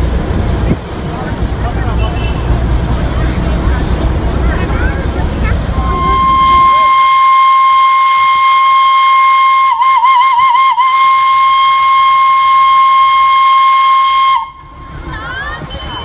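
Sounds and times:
steam locomotive whistle: 5.7s - 14.8s.

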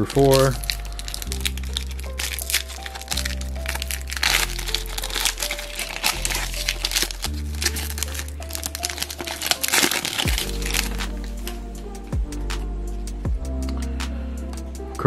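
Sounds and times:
foil wrapper crinkling: 0.0s - 11.8s
background music with bass: 0.0s - 15.0s.

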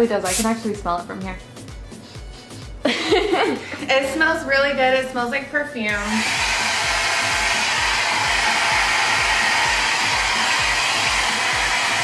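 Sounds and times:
hair dryer blowing: 6.0s - 12.0s.

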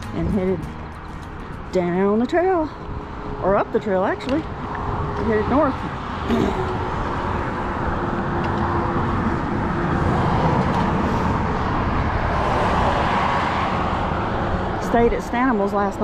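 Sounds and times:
highway traffic noise: 0.0s - 16.0s.

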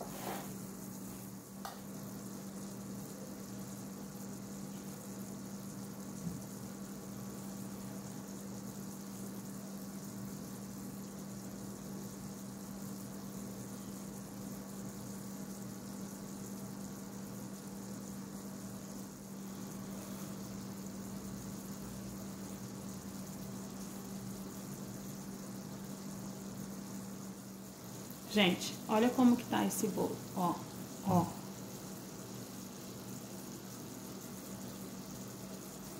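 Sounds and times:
hiss: 0.0s - 1.2s
steady low hum: 18.0s - 35.9s.

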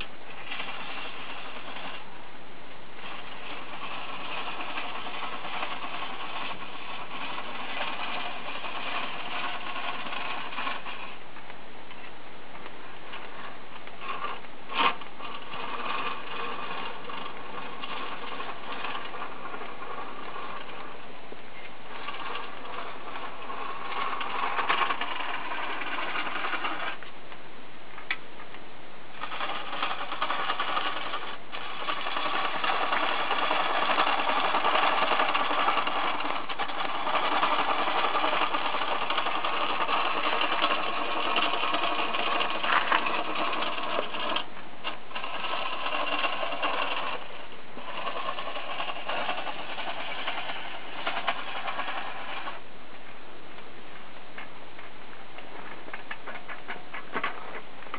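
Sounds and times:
treadle lathe mechanism running: 0.0s - 27.1s, 29.1s - 53.2s
chisel rasping on wood: 0.4s - 2.1s, 3.0s - 11.2s, 13.2s - 21.0s, 21.9s - 27.0s, 29.2s - 52.6s.

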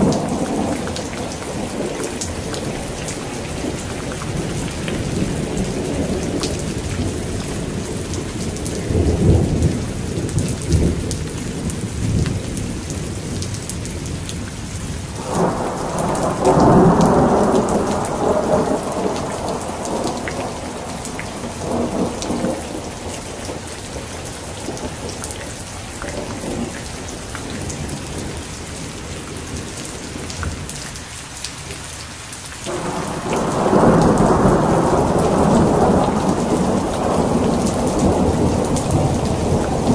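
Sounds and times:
heavy rain: 0.0s - 39.9s
thunder rolling: 15.2s - 25.2s, 32.7s - 39.9s.

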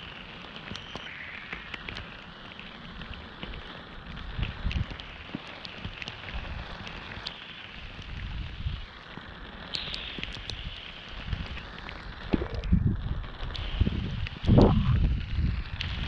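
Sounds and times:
heavy rain hissing: 0.0s - 16.0s
low rumbling thumps: 14.4s - 15.5s.

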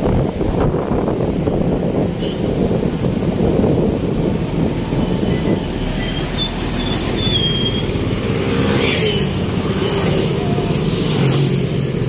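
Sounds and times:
motorcycle engine rumble: 0.0s - 12.0s
wind noise: 0.0s - 12.0s
faint high squeals: 5.0s - 8.0s.

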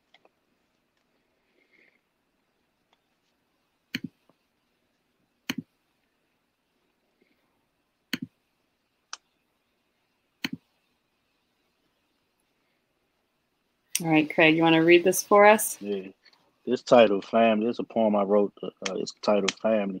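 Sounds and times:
computer mouse clicking: 3.9s - 4.4s, 5.4s - 5.7s, 8.1s - 8.4s, 10.4s - 10.7s.

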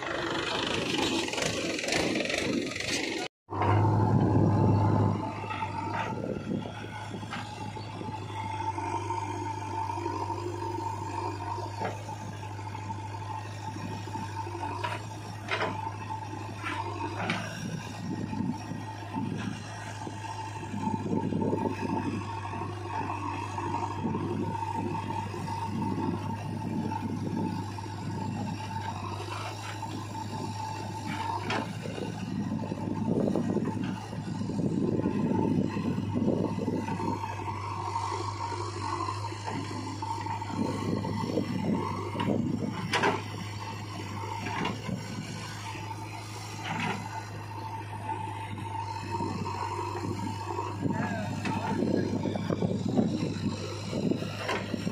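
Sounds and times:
diesel engines running: 0.0s - 54.9s.

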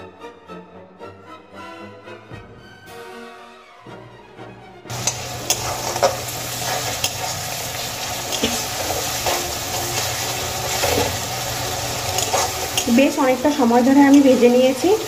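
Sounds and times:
metal spatula scraping pan: 4.9s - 14.5s
vegetables sizzling in oil: 4.9s - 15.0s.

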